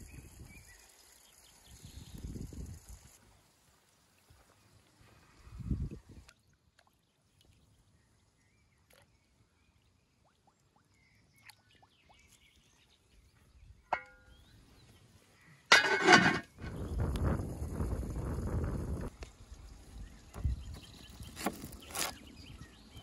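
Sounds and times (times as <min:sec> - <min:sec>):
metal lid clanking on pot: 0:15.7 - 0:16.6.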